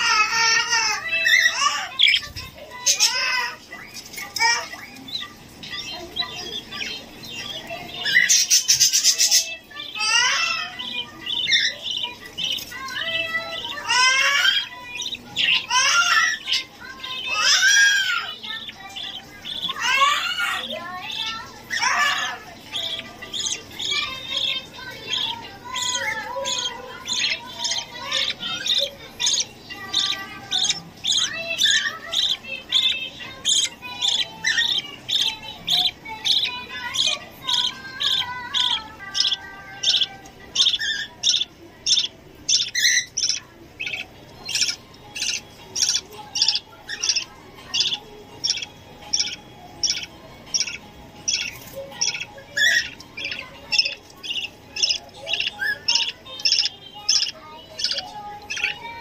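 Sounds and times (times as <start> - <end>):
chicks cheeping: 0.0 - 59.0
soft warbling chatter: 0.0 - 59.0.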